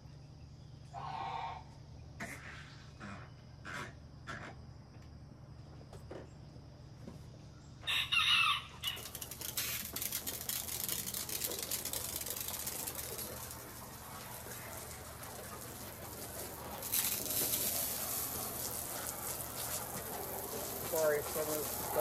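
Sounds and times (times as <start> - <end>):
poultry call: 0.9 - 1.8
garden hose spraying water: 8.1 - 22.0.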